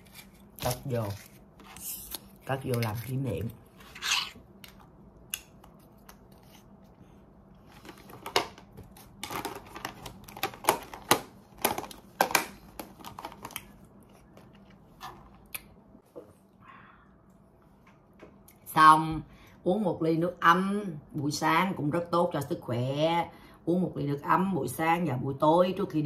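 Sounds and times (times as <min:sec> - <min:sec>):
plastic pill case handled: 0:07.7 - 0:13.8.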